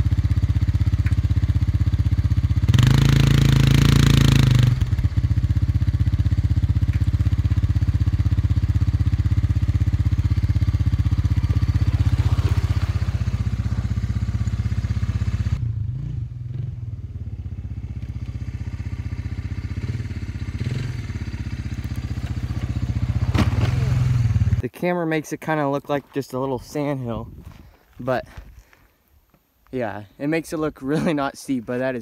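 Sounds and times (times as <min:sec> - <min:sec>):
atv engine idling: 0:00.0 - 0:24.6.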